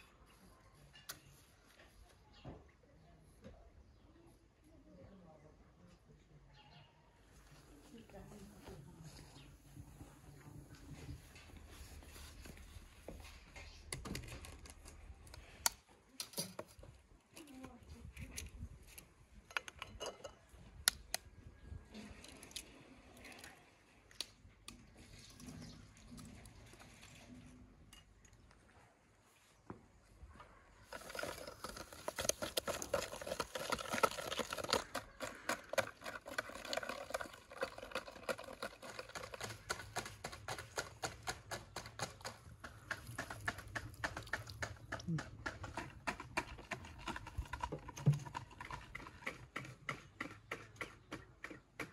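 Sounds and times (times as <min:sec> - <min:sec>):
whisk beating in plastic bowl: 0:30.9 - 0:51.9.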